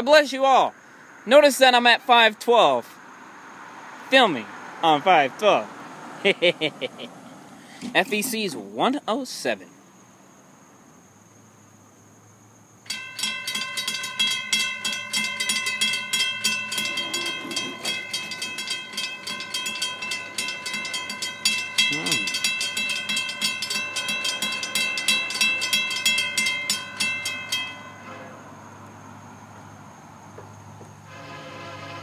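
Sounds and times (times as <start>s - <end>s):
crossing bell ringing: 12.9s - 28.8s.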